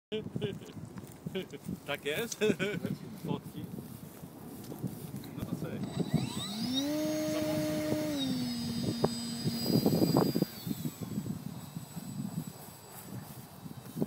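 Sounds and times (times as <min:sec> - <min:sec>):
wind rumbling on microphone: 0:00.1 - 0:14.0
electric motor and propeller whining: 0:04.9 - 0:14.0.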